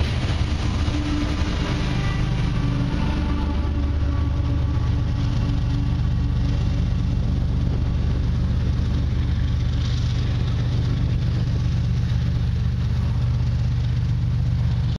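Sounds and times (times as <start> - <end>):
engine idling: 0.0 - 14.9.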